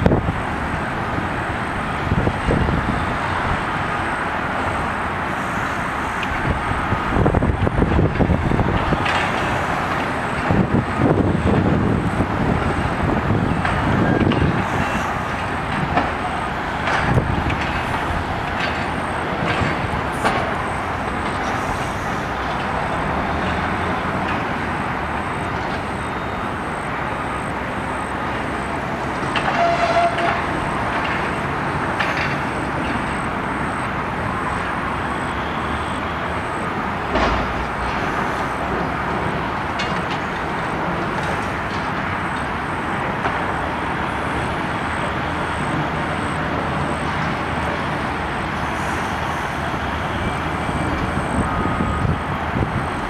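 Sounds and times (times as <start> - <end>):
crane diesel engine: 0.0 - 53.0
traffic noise: 0.0 - 53.0
knocks and clanks: 16.8 - 21.6, 37.1 - 38.1.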